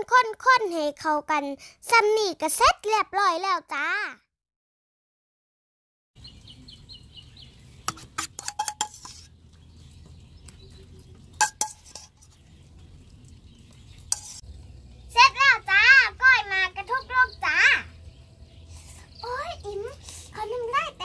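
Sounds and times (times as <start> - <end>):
bird chirping: 6.2 - 15.6, 16.2 - 20.4
metal spoon clinking on plate: 7.9 - 9.2, 11.4 - 12.2.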